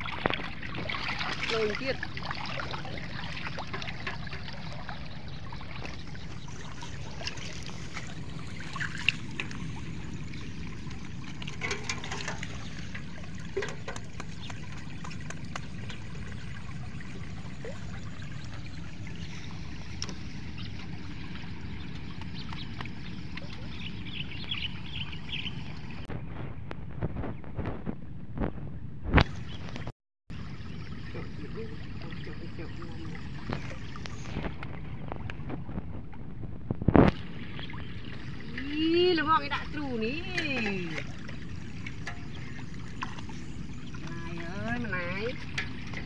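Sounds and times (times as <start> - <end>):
water trickling and dripping: 0.0 - 26.1, 29.3 - 36.1, 37.0 - 46.0
low rumble: 0.0 - 46.0
fish trap knocking on bucket: 11.5 - 16.0.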